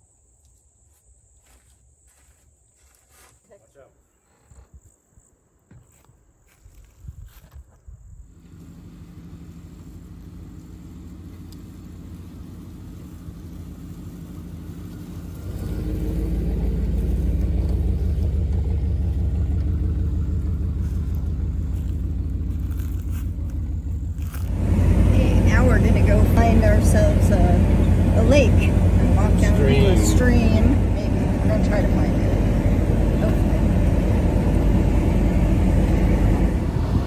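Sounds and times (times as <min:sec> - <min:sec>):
truck engine idling and driving past: 0:08.2 - 0:37.0.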